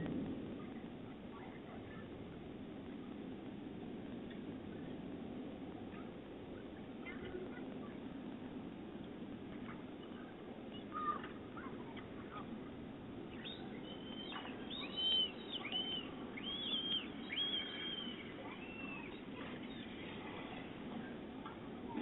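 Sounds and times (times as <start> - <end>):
low background hum: 0.0 - 22.0
bird chirping: 13.2 - 20.2.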